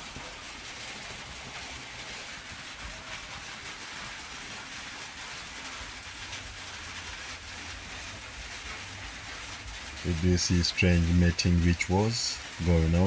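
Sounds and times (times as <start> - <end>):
rain on a roof: 0.0 - 13.0.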